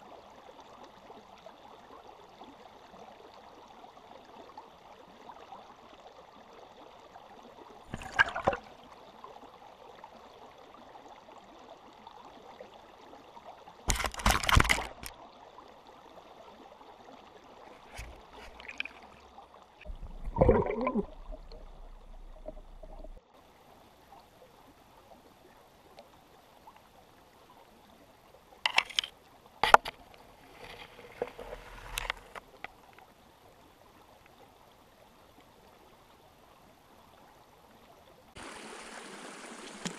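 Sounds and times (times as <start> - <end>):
creek water running: 0.0 - 39.9
water splashes and knocks: 7.8 - 8.8, 13.9 - 15.2, 17.7 - 23.2, 28.7 - 32.8, 39.6 - 39.9.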